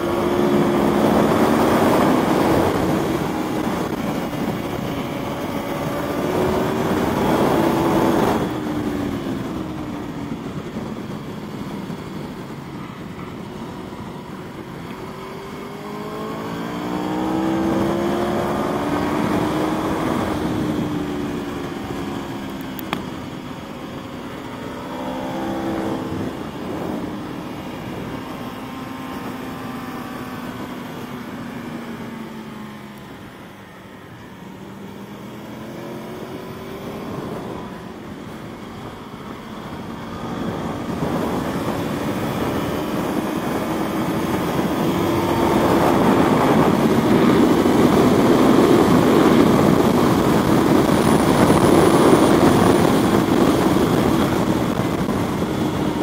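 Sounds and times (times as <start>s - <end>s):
motorcycle engine revving: 0.0s - 56.0s
wind noise rushing: 23.3s - 29.6s, 36.2s - 56.0s.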